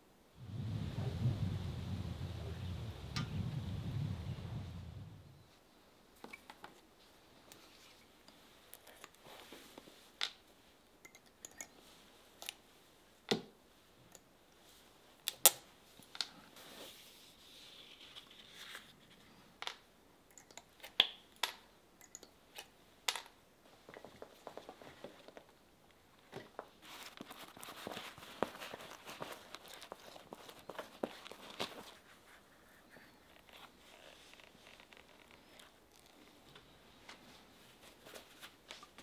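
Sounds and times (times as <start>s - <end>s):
handling rustle: 26.2s - 39.0s.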